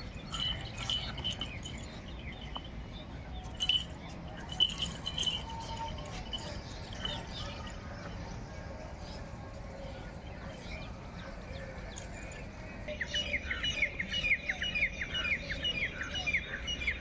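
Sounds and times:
harness and rope clinking: 0:00.0 - 0:08.2, 0:10.5 - 0:12.9.

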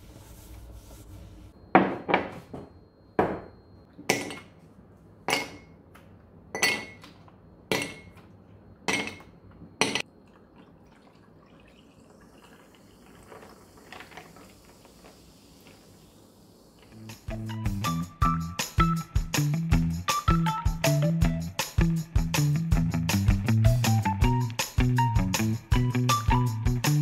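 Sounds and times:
soda pouring and fizzing: 0:10.1 - 0:16.9.

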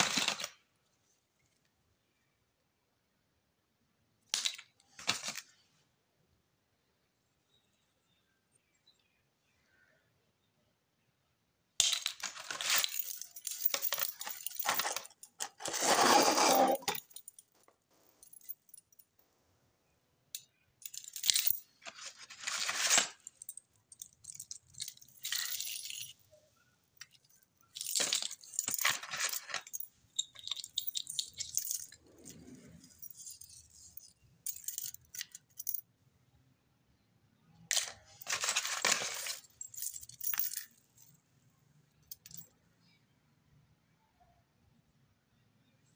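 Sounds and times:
metal watches jangling: 0:11.9 - 0:17.6, 0:20.4 - 0:35.8.

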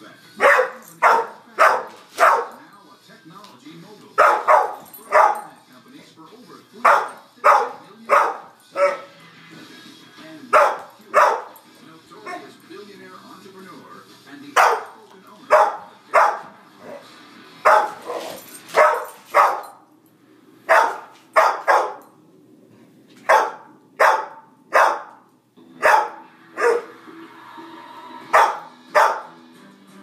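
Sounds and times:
dog barking: 0:00.4 - 0:02.6, 0:04.2 - 0:05.5, 0:06.8 - 0:09.1, 0:10.5 - 0:11.6, 0:14.6 - 0:17.0, 0:17.6 - 0:19.8, 0:20.7 - 0:22.1, 0:23.2 - 0:26.9, 0:28.3 - 0:29.4.

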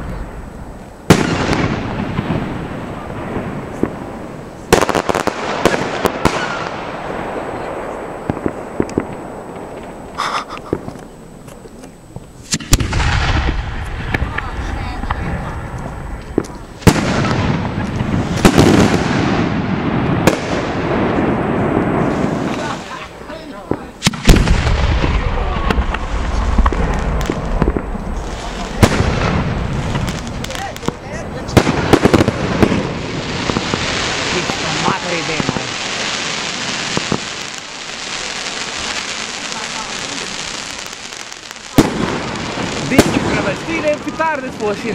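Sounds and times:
firework cracks: 0:00.0 - 0:44.9
low rumbling echo: 0:12.6 - 0:40.4.

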